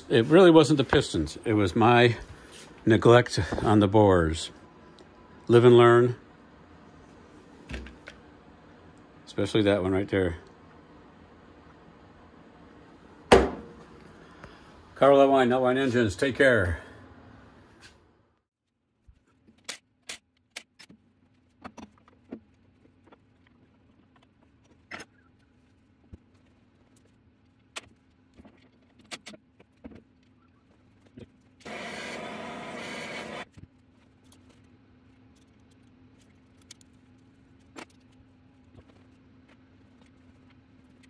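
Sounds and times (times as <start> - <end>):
hand-held power tool running: 31.6 - 33.4.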